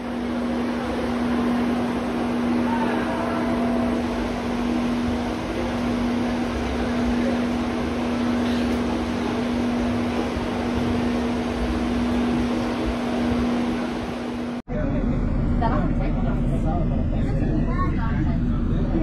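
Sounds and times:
electric bus machine hum: 0:00.0 - 0:19.0.

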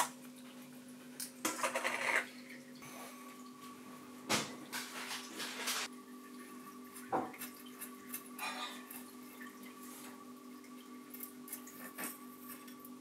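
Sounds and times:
water drips and splashes: 0:02.3 - 0:03.8, 0:06.1 - 0:13.0.

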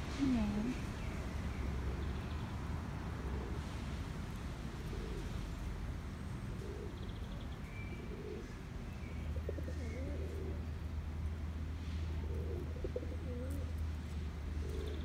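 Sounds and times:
pigeons cooing: 0:04.8 - 0:05.4, 0:06.5 - 0:07.2, 0:08.0 - 0:08.5, 0:09.3 - 0:10.7, 0:12.1 - 0:13.8, 0:14.5 - 0:15.0.

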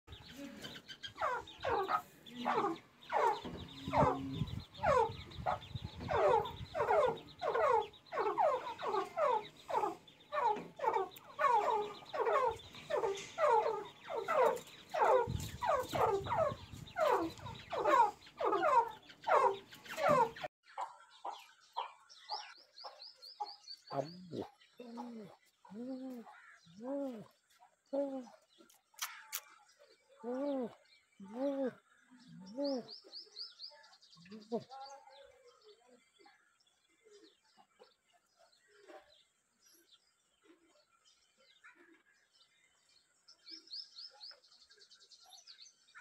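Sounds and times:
partridges calling: 0:00.1 - 0:26.8
faint bird calls: 0:00.2 - 0:20.5.

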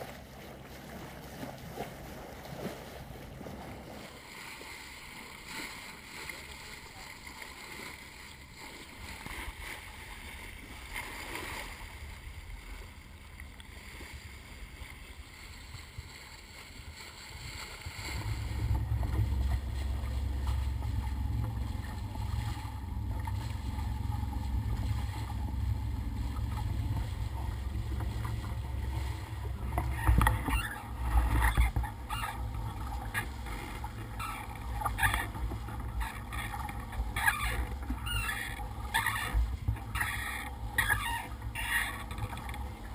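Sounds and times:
bow wave rushing along hull: 0:00.0 - 0:42.9
low rumble: 0:11.6 - 0:42.9.

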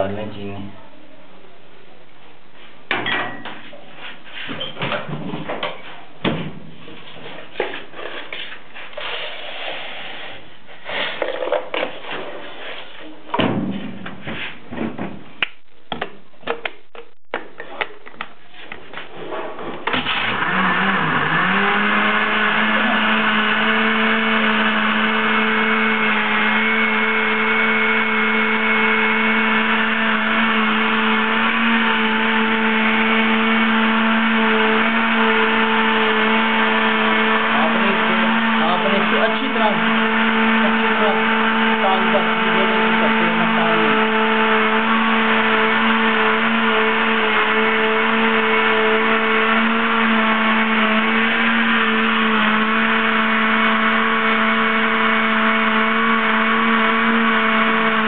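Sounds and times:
knocks and clicks handling blender jar: 0:11.2 - 0:12.0
blender motor whining: 0:19.8 - 0:58.0.

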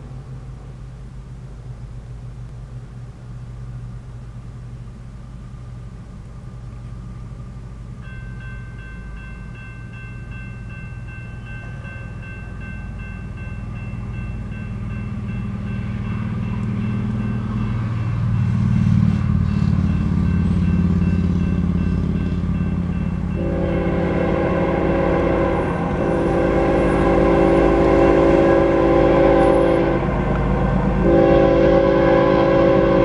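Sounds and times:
approaching train rumble: 0:00.0 - 0:33.0
steady low hum: 0:00.0 - 0:33.0
railroad crossing bell ringing: 0:06.8 - 0:33.0.

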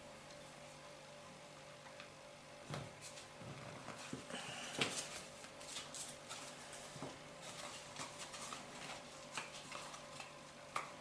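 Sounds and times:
cardstock rustling and tapping: 0:03.9 - 0:11.0.

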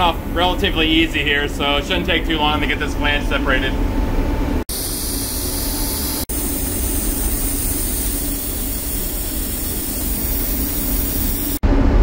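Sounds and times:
machinery roar with hiss: 0:04.7 - 0:12.0.

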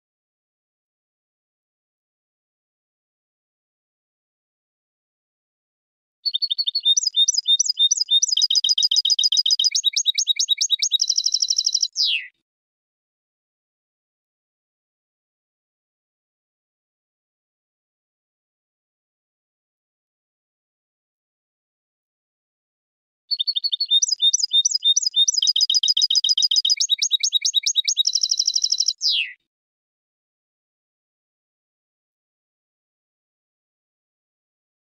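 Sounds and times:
goldfinch singing trills: 0:06.3 - 0:12.3, 0:23.3 - 0:29.4.

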